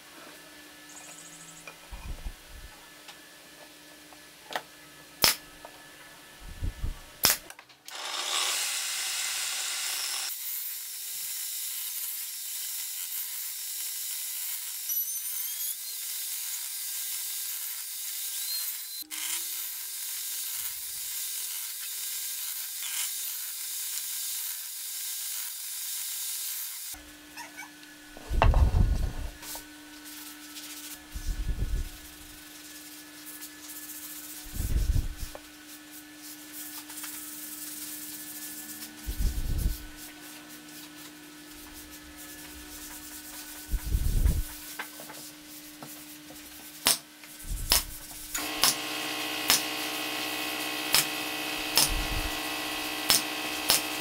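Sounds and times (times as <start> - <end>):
low steady hum: 27.8 - 30.0
wood being sanded: 47.4 - 54.0.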